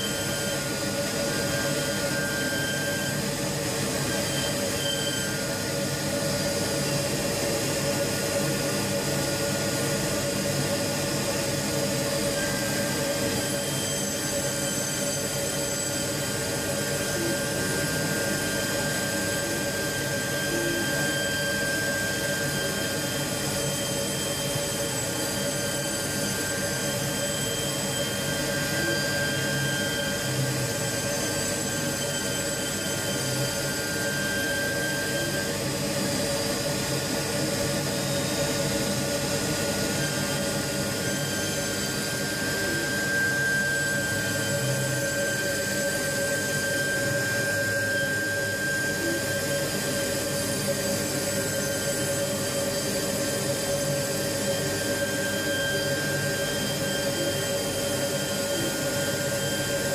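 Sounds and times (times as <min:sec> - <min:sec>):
milling machine spindle whine: 0:00.0 - 0:59.9.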